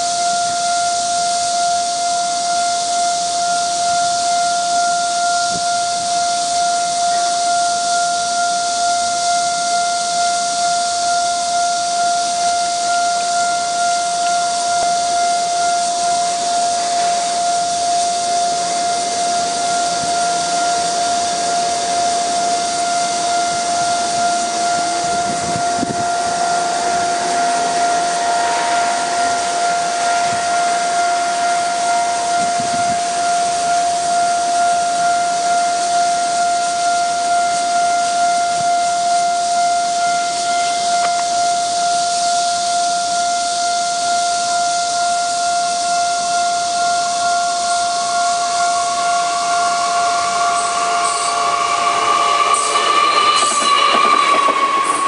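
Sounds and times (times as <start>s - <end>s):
level-crossing warning bell: 0.0s - 55.0s
steady high hiss: 0.0s - 55.0s
train carriages knocking: 47.9s - 55.0s.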